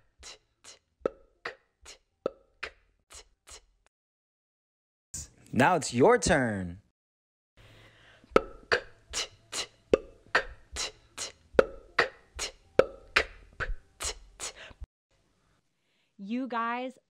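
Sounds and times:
beatboxing: 8.4s - 14.6s.

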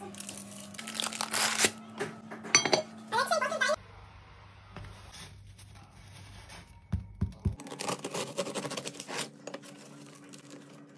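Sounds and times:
bread knife sawing crusty loaf: 7.6s - 9.3s.

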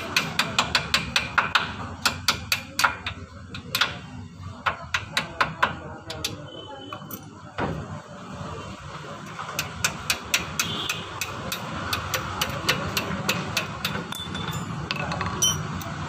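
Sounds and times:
metal rod tapping on metal: 0.0s - 4.0s, 4.6s - 6.4s, 9.6s - 16.0s.

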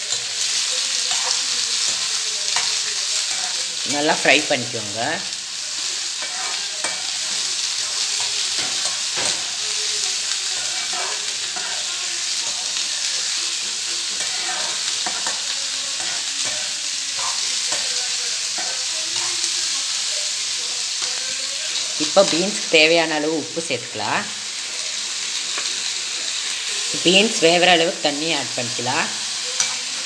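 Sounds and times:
metal spoon scraping a pan: 0.0s - 4.8s, 5.7s - 20.1s, 29.3s - 30.0s
green beans sizzling in oil: 0.0s - 30.0s.

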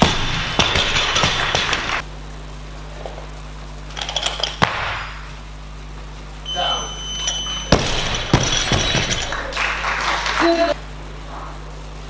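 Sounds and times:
low hall hum: 0.0s - 12.0s.

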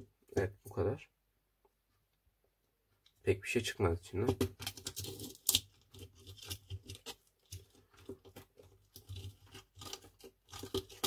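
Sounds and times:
screwdriver scraping plastic parts: 4.3s - 11.0s.

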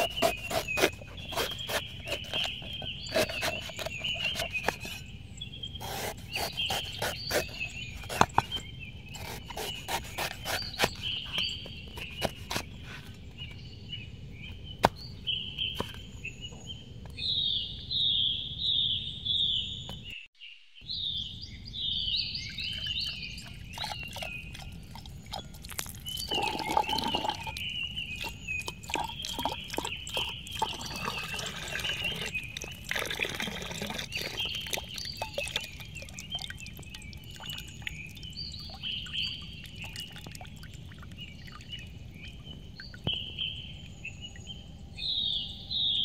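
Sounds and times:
birds chirping: 0.0s - 46.0s
liquid pouring into glass: 22.6s - 38.3s.

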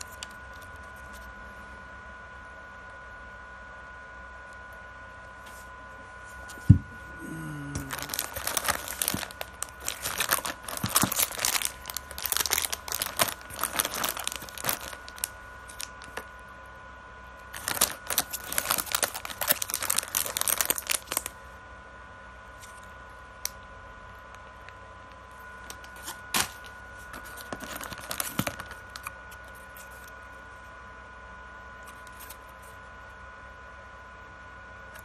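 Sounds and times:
plastic bag crackling: 7.2s - 16.3s, 17.5s - 21.3s, 25.7s - 29.1s.

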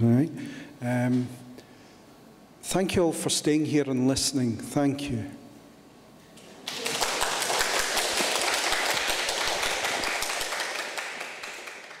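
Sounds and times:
audience applause: 6.6s - 12.0s.

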